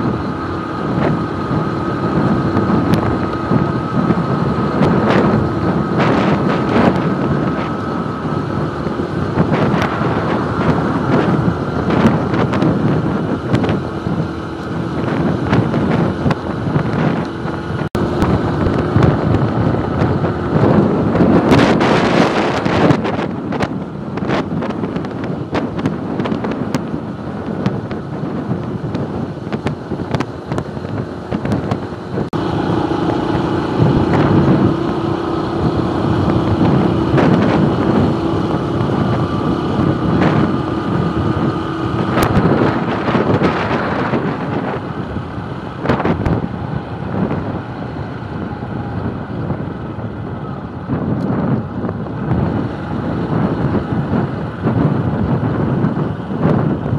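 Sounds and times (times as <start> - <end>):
motorcycle engine running: 0.0 - 56.9
wind buffeting microphone: 0.0 - 56.9.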